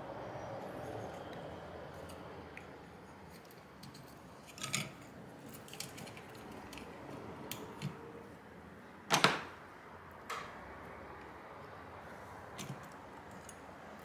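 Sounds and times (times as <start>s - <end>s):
plastic fan clicks and clatter: 1.2s - 8.0s.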